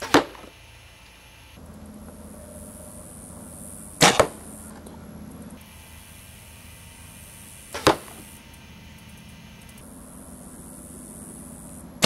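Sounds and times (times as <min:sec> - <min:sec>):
arrow hitting foam target: 0:00.0 - 0:00.5, 0:04.0 - 0:04.4, 0:07.8 - 0:08.2.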